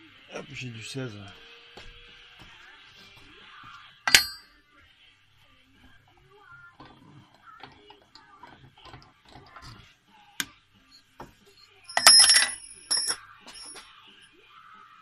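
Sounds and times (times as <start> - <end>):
ringing metallic clink: 4.1 - 4.6, 11.9 - 13.9.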